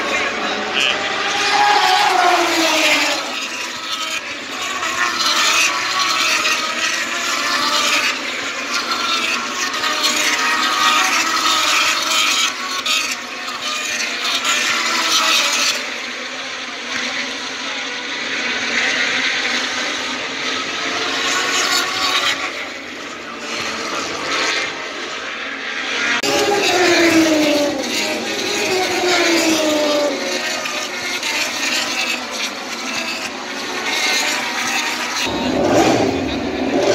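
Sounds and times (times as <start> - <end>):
racing motorcycles at high revs: 0.0 - 36.9.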